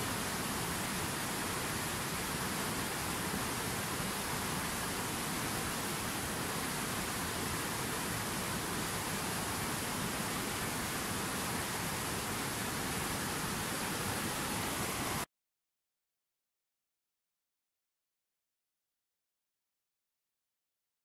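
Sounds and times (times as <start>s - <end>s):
whitewater river rushing: 0.0s - 15.2s.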